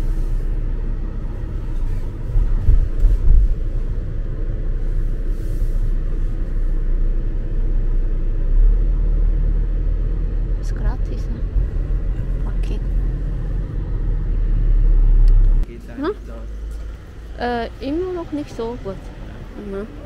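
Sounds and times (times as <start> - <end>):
car road and engine rumble: 0.0 - 20.0.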